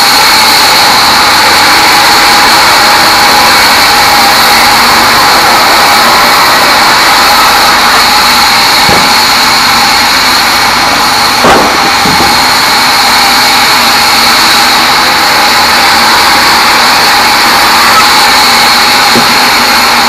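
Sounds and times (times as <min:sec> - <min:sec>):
bandsaw sawing logs: 0:00.0 - 0:20.0
timber knocks: 0:08.9 - 0:09.2, 0:11.4 - 0:12.4, 0:19.1 - 0:19.3.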